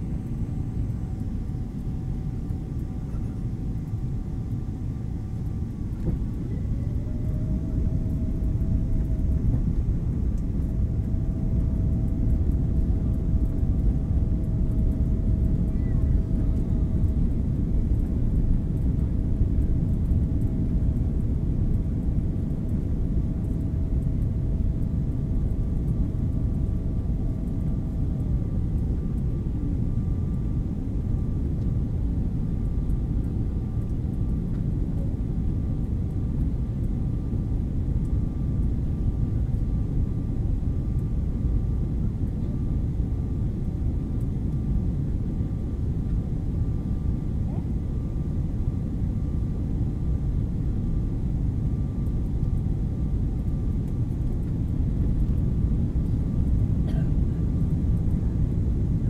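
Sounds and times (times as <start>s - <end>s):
jet engine and airflow rush: 0.0s - 21.3s, 26.0s - 36.4s
faint steady whine: 0.0s - 59.0s.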